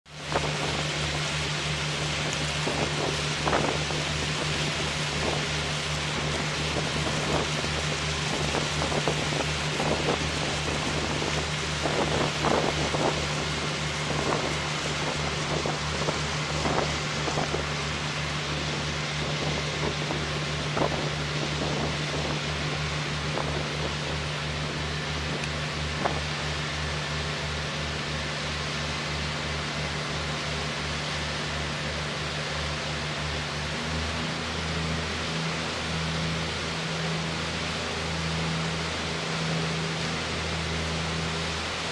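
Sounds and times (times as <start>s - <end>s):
boat engine drone: 0.0s - 41.9s.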